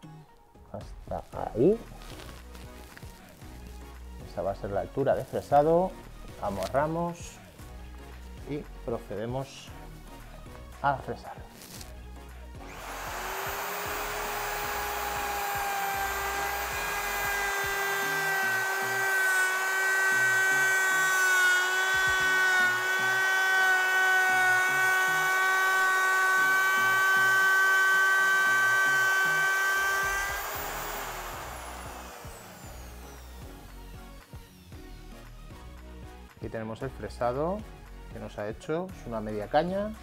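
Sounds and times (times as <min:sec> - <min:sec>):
router motor whining: 0:12.6 - 0:35.8.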